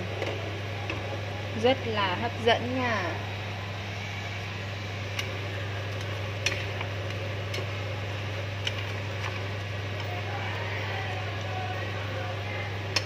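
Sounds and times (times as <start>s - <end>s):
steady low hum: 0.0s - 13.0s
sharp pops of frying: 5.0s - 10.2s.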